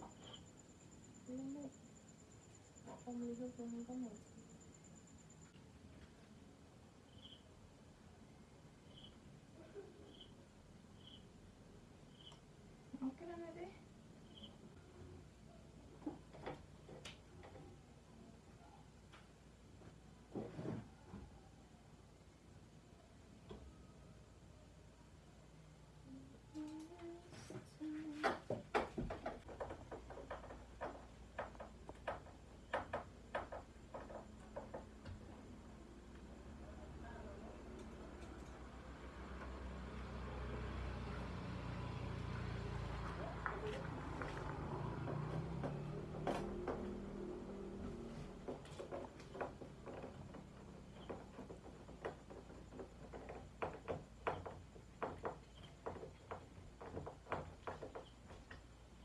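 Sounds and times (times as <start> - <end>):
faint irregular clicks: 37.6 - 38.8.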